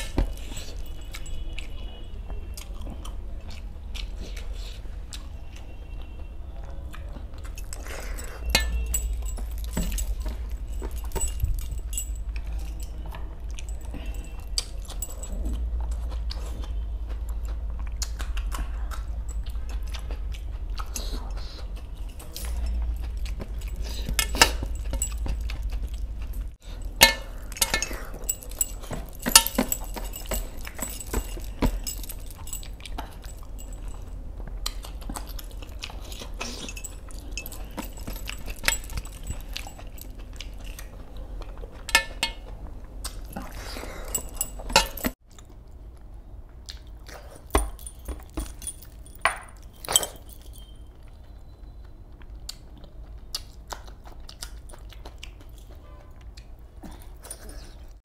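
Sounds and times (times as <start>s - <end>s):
person chewing: 0.0s - 58.0s
metal jewellery clinking on platter: 7.6s - 15.7s, 22.0s - 25.5s, 26.4s - 34.2s, 35.1s - 40.9s, 43.2s - 45.2s, 47.4s - 50.9s.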